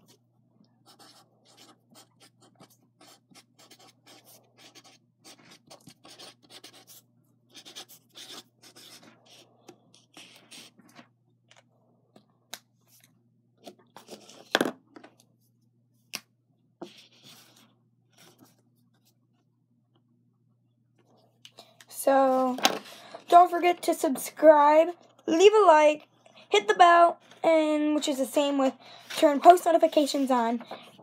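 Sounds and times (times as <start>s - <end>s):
marker scratching strokes: 0.8s - 10.8s.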